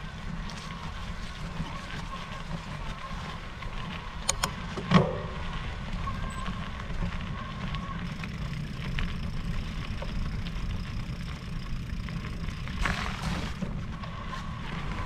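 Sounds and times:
electric bike rolling on trail: 0.0 - 15.0
small clicks and ticks: 6.1 - 13.6.

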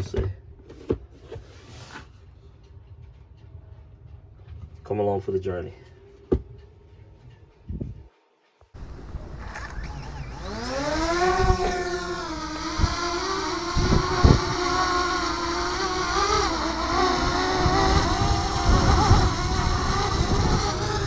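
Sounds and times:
drone propellers whining: 8.8 - 21.0
short low thumps: 8.8 - 21.0.

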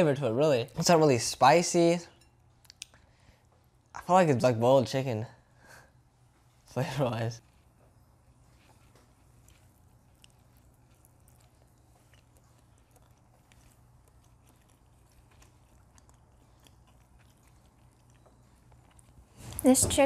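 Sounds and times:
chewing and biting: 7.4 - 19.7.

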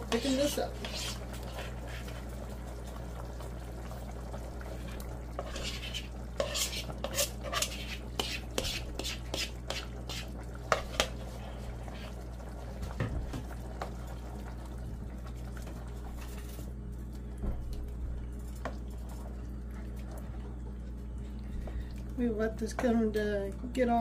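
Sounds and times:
ladle stirring stew: 0.0 - 2.5, 4.5 - 12.4
steady low hum: 0.0 - 24.0
spoon scraping bowl: 0.8 - 2.1, 5.4 - 11.1.

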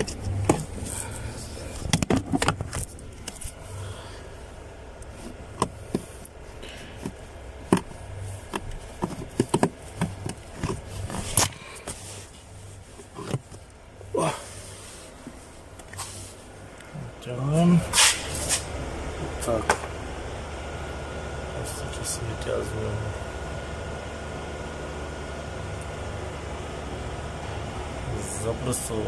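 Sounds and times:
plastic clicks and knocks: 8.5 - 10.8.

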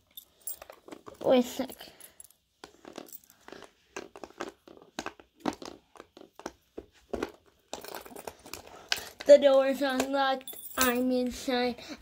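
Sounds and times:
toy props being handled: 0.0 - 11.6.

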